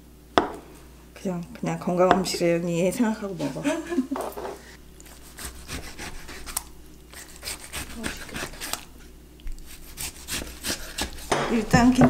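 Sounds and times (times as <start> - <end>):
kitchen utensils scraping: 3.4 - 4.8, 9.9 - 12.0.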